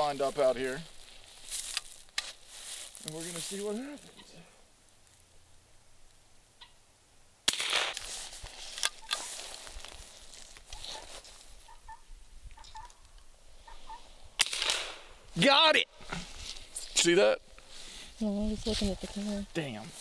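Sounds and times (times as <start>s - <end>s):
rifle shots: 7.5s - 8.0s, 14.4s - 15.2s.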